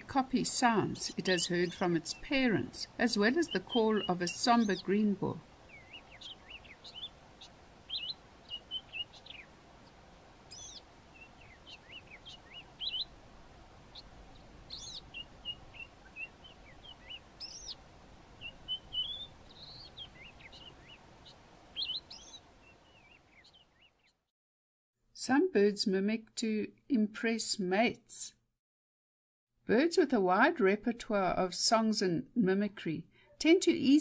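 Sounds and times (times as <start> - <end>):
bird whistled song notes: 10.5 - 13.1, 13.9 - 17.8, 18.4 - 21.0, 21.8 - 24.2.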